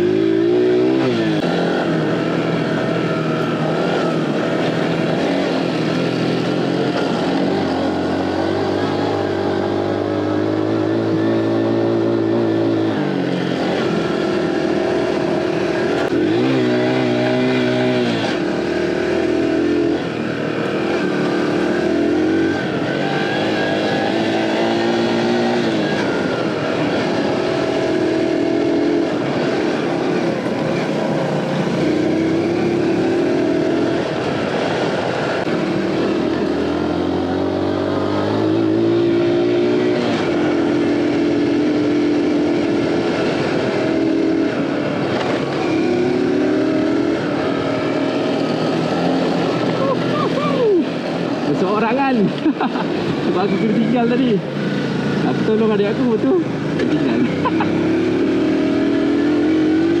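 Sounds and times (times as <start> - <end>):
motorcycle engine revving: 0.0 - 60.0.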